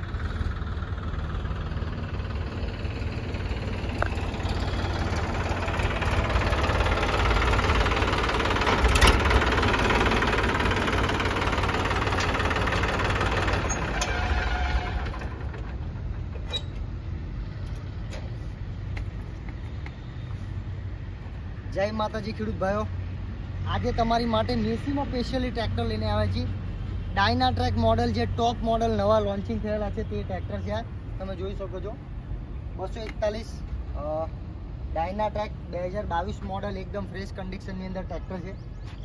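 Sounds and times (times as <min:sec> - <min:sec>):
tractor diesel engine running: 0:00.0 - 0:19.5.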